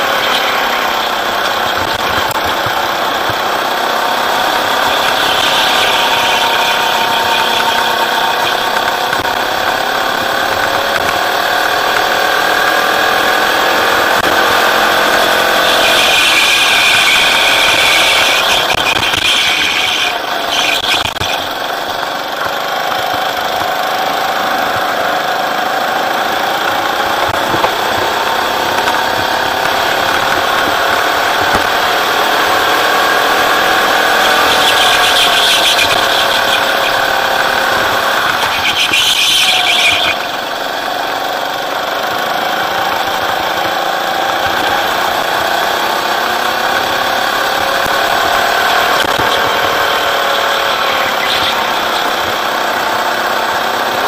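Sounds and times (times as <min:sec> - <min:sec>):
go-kart engine revving: 0:00.0 - 0:54.0
tyres squealing: 0:04.2 - 0:08.9, 0:14.7 - 0:21.9, 0:33.4 - 0:40.6, 0:48.1 - 0:53.1.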